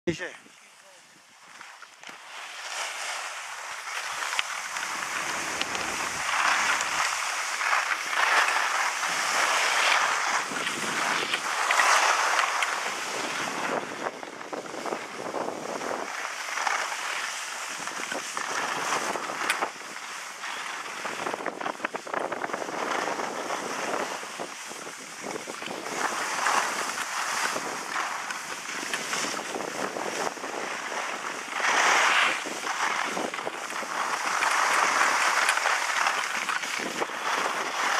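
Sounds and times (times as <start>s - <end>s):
skis scraping over snow: 0.1s - 37.9s
wind buffeting microphone: 4.8s - 7.9s.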